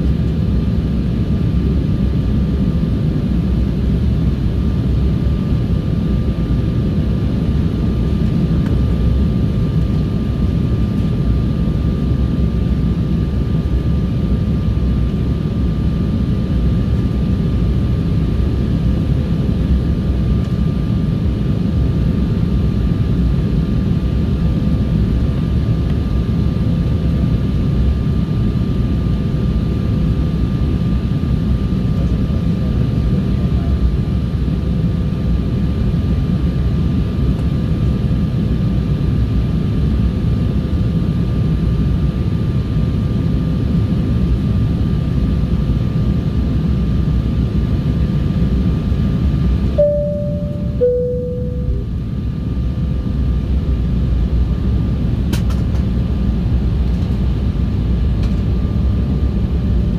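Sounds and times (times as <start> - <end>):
airliner cabin drone: 0.0 - 59.9
faint hum: 49.6 - 55.2.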